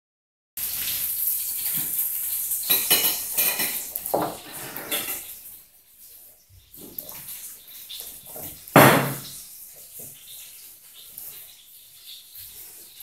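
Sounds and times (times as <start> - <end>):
paws and claws scraping on floor: 4.2 - 5.2.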